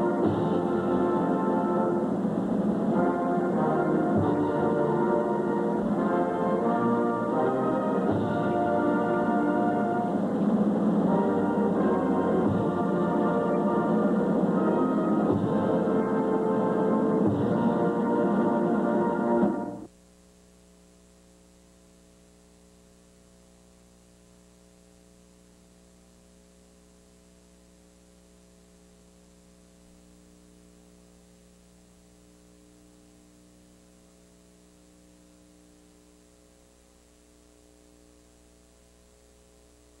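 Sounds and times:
anthem recording: 0:00.0 - 0:20.0
faint electrical mains hum: 0:00.0 - 0:40.0
static: 0:00.0 - 0:40.0.

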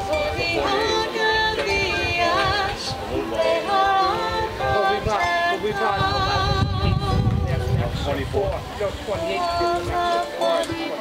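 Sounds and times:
small harp playing: 0:00.0 - 0:06.4, 0:09.0 - 0:11.0
woman singing with vibrato: 0:00.0 - 0:07.4, 0:09.2 - 0:11.0.

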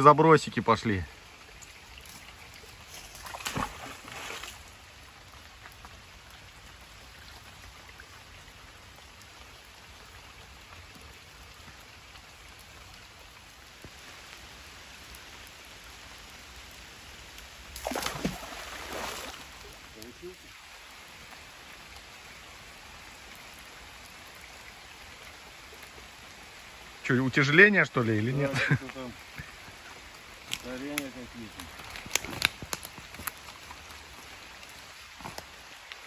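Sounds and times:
light rain falling: 0:00.0 - 0:36.0
magnet splashing into water: 0:17.8 - 0:19.4.

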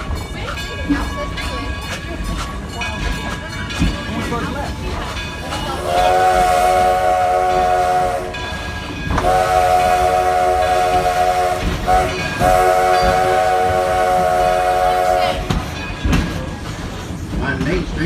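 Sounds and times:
train cars rumbling on track: 0:00.0 - 0:18.0
steam locomotive whistle blasts: 0:05.8 - 0:15.5.

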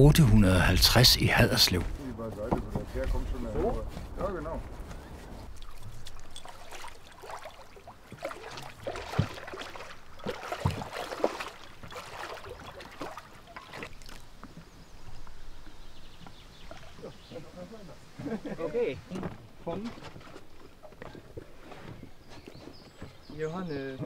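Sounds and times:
wooden knocks and clatter: 0:02.4 - 0:04.8
faint water trickle: 0:05.4 - 0:17.9.

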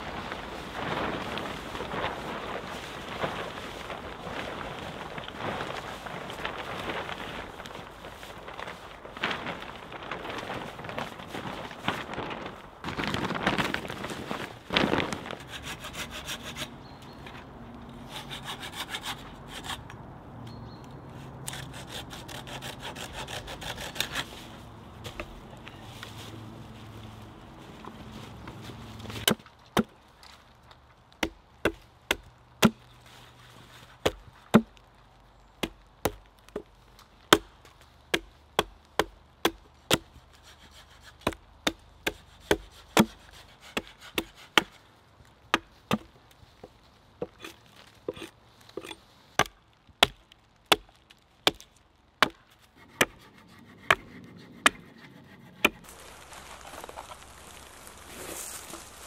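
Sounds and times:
knife shaving wood: 0:21.4 - 0:25.3, 0:39.9 - 0:44.8, 0:52.7 - 0:59.0
axe chopping wood: 0:29.2 - 0:30.0, 0:31.2 - 0:32.8, 0:34.0 - 0:34.8, 0:37.3 - 0:40.1, 0:41.2 - 0:44.8, 0:45.5 - 0:46.1, 0:48.1 - 0:53.2.

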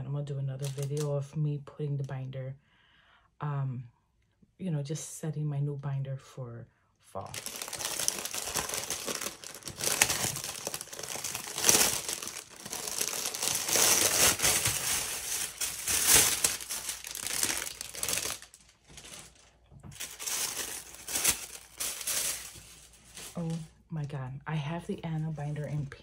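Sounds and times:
plastic packaging crinkling: 0:00.6 - 0:01.1, 0:07.2 - 0:23.7
tissue paper rustling: 0:07.2 - 0:23.7.

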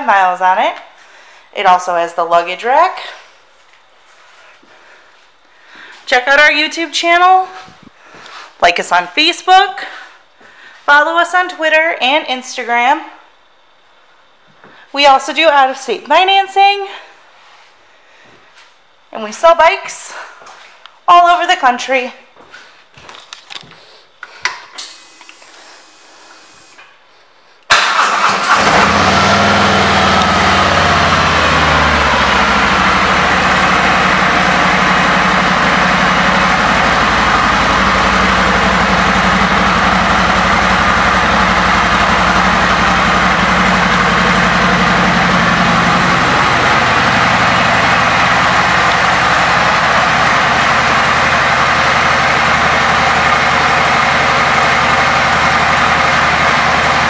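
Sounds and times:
motorcycle engine starting and idling: 0:27.7 - 0:57.0.

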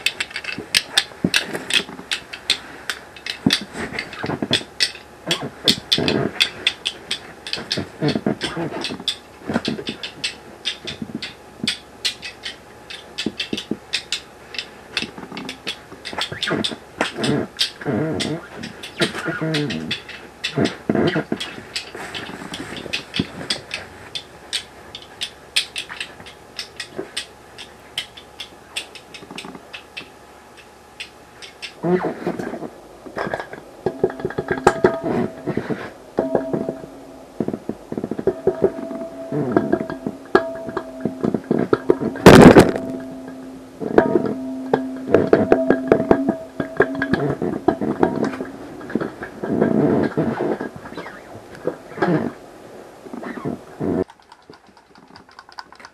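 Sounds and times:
plucked string music: 0:33.2 - 0:50.9.

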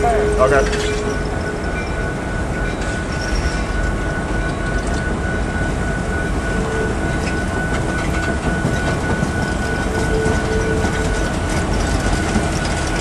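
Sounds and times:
thin high ring: 0:00.0 - 0:08.4
train wheels rumbling on rails: 0:00.0 - 0:13.0.

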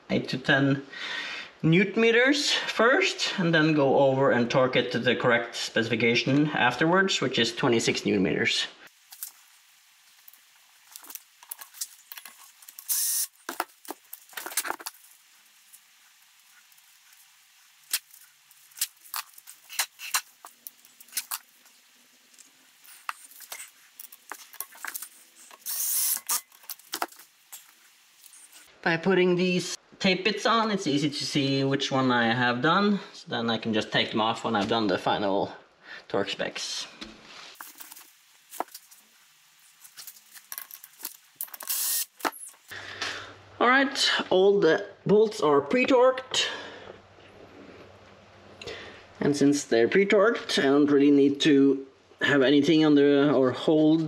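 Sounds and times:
tape being handled and pressed: 0:10.2 - 0:15.2, 0:17.8 - 0:21.8, 0:22.4 - 0:28.6, 0:39.7 - 0:42.6
cordless drill burst: 0:12.8 - 0:13.4, 0:25.6 - 0:26.5, 0:41.6 - 0:42.2
ratchet tool clicking: 0:25.6 - 0:26.4, 0:41.5 - 0:42.1.

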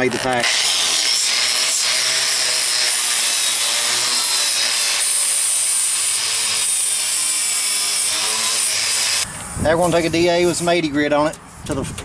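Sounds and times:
wire brush scouring metal: 0:00.0 - 0:09.2
angle grinder motor whine: 0:00.0 - 0:09.5.

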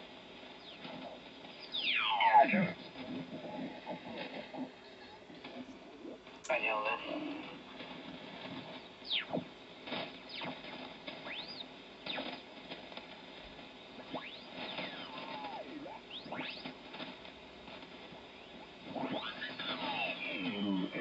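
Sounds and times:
radio band noise: 0:00.0 - 0:21.0
squeaky gliding radio whistles: 0:00.6 - 0:02.6, 0:10.3 - 0:12.4, 0:14.1 - 0:16.7.

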